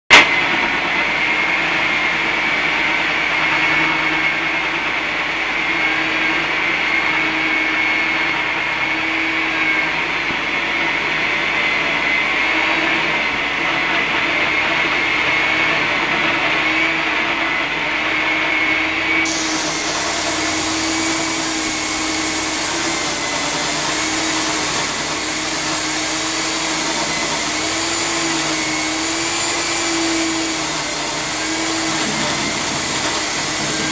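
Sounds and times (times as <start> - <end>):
core drill whining: 0.1 - 33.9
bright hiss: 19.2 - 33.9.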